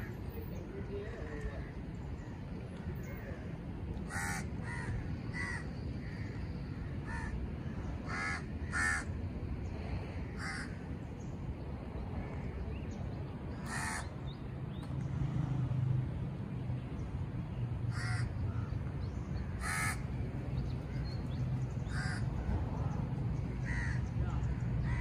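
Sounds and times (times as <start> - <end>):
low background noise: 0.0 - 25.0
crow cawing: 4.1 - 6.4, 7.0 - 7.4, 8.0 - 9.1, 10.4 - 10.8, 13.6 - 14.1, 17.9 - 18.7, 19.5 - 20.0, 21.8 - 22.3, 23.6 - 24.1, 24.8 - 25.0.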